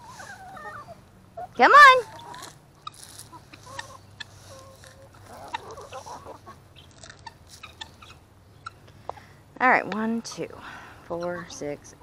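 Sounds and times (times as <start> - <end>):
birds chattering calls: 0.0 - 10.5
chickens clucking: 0.0 - 12.0.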